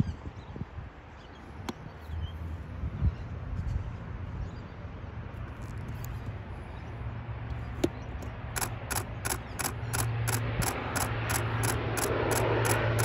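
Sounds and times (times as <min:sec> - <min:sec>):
low engine drone: 0:01.5 - 0:13.0
regular clicks: 0:07.5 - 0:13.0
sharp click: 0:07.8 - 0:13.0.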